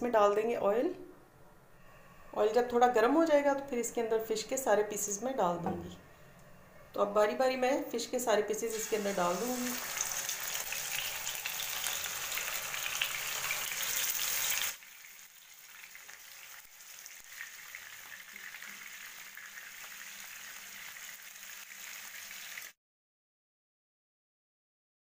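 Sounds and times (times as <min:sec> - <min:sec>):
fish sizzling in oil: 0:08.7 - 0:22.8.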